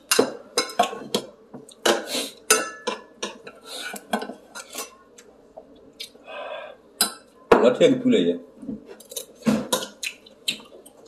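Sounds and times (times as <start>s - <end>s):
cutlery clinking on bowls: 0.0s - 5.0s, 9.0s - 10.1s.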